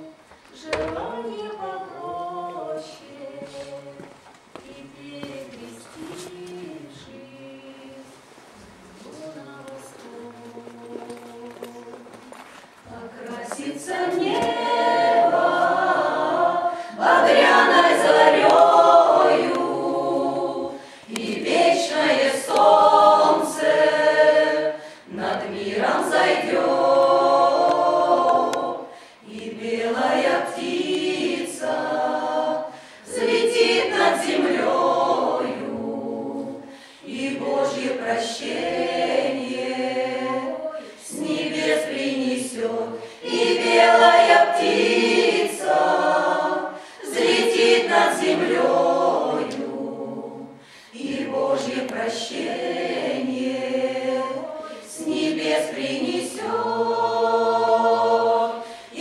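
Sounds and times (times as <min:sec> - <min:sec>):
folk choir singing: 0:00.0 - 0:59.0.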